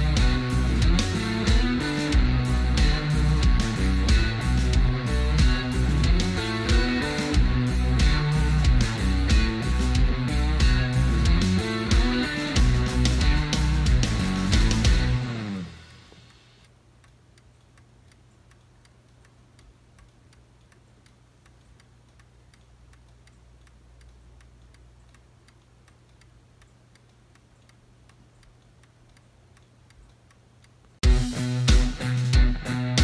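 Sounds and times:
guitar music: 0.0s - 16.1s, 31.0s - 33.0s
clock ticking: 0.0s - 33.0s.

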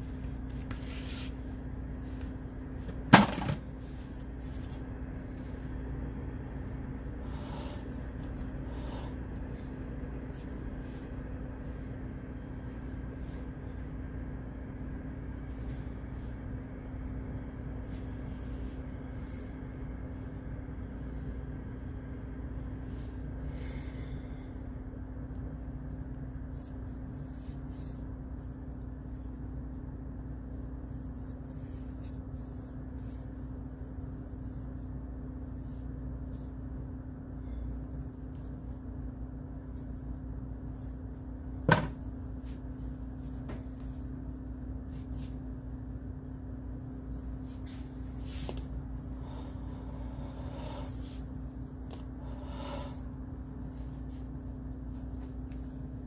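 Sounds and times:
low hum: 0.0s - 56.0s.

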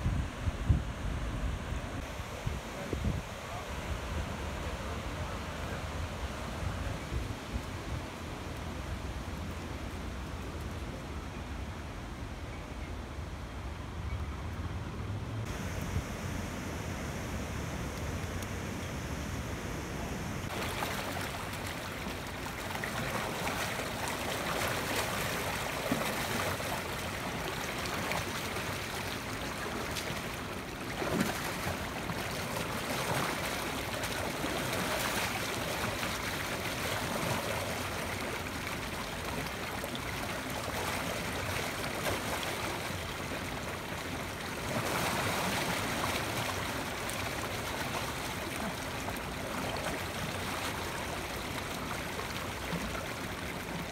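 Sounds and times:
water rushing over weir: 15.4s - 53.9s.

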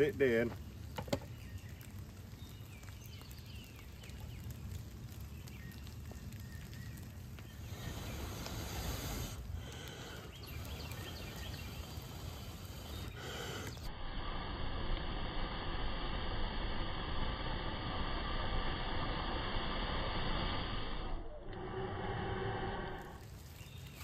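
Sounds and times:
light rain hiss: 0.0s - 24.0s
faint chirps: 1.2s - 24.0s
low rumble: 13.8s - 23.6s.

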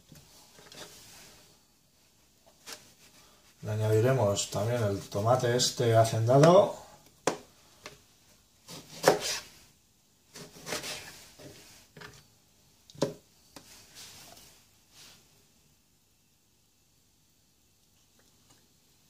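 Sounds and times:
knife chopping on cutting board: 8.7s - 9.4s, 10.3s - 11.1s.

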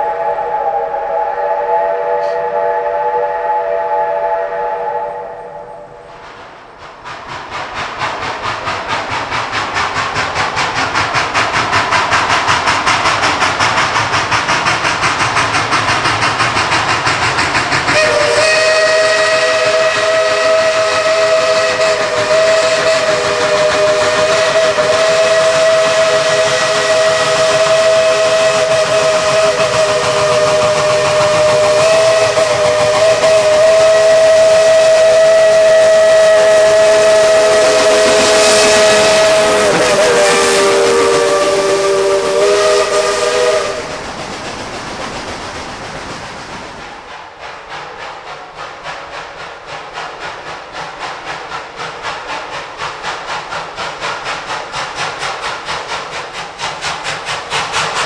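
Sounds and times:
steam whistle chord: 0.0s - 6.1s, 17.9s - 44.0s
steam hissing: 0.0s - 58.0s
steam locomotive exhaust chuffing: 0.0s - 58.0s.

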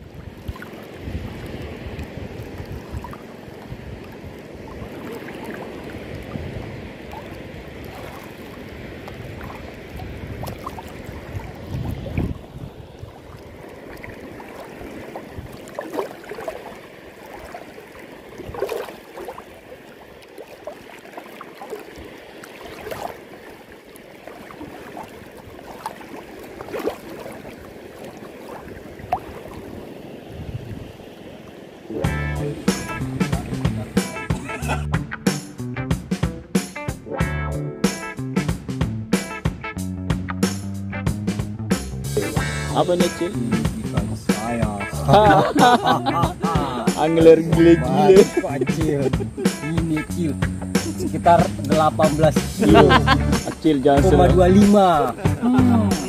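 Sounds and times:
wind rumbling on microphone: 0.0s - 15.8s, 26.4s - 34.8s
water lapping around legs: 0.0s - 31.9s, 32.5s - 34.9s, 42.2s - 56.0s.

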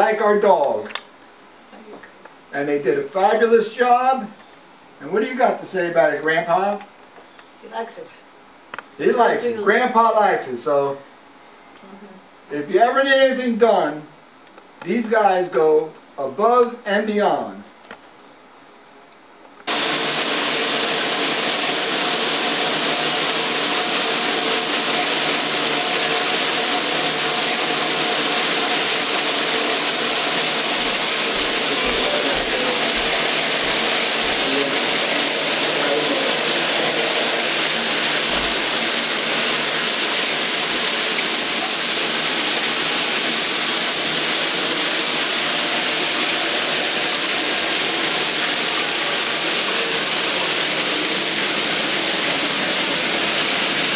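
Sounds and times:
shower water spraying on tiles: 19.7s - 53.9s.

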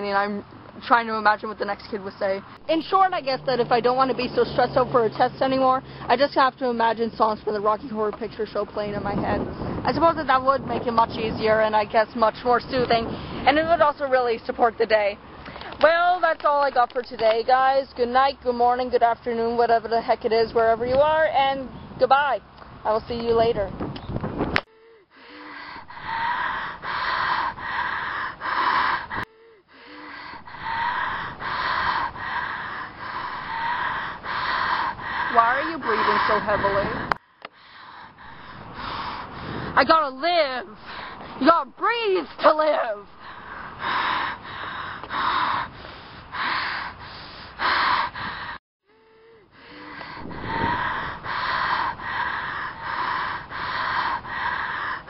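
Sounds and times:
person breathing heavily: 5.8s - 6.1s, 24.7s - 39.8s, 40.7s - 41.4s, 43.1s - 55.0s.

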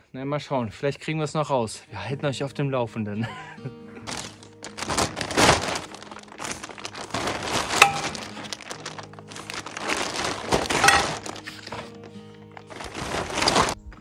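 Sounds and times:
plastic tarp crinkling: 4.0s - 13.8s
metal poles clinking: 6.4s - 13.8s.

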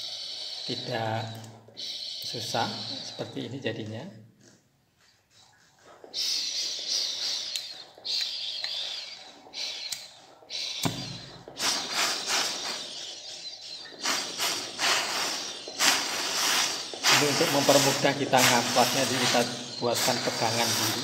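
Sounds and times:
gas hissing in spurts: 9.6s - 21.0s.

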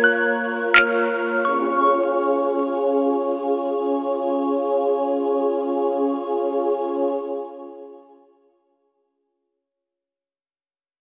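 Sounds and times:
held chord background music: 0.0s - 7.6s.

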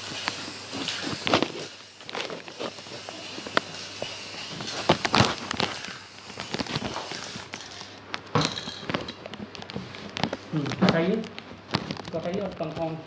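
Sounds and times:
spray paint can hissing: 0.0s - 7.8s.

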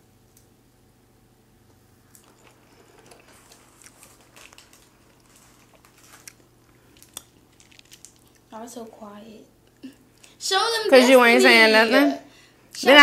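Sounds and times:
close chewing of food: 2.2s - 8.6s.

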